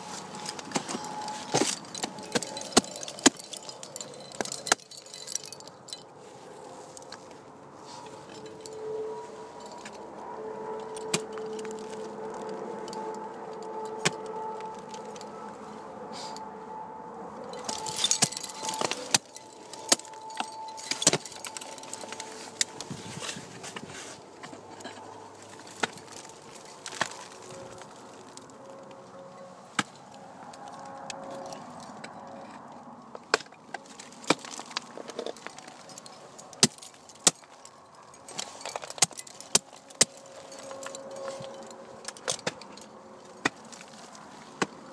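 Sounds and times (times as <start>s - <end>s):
climbing hardware clinking: 0.0s - 10.0s, 10.7s - 15.7s, 17.4s - 44.9s
ice axe picks striking ice: 0.7s - 3.7s, 17.6s - 22.0s, 33.3s - 34.8s, 36.6s - 37.5s, 38.3s - 40.7s.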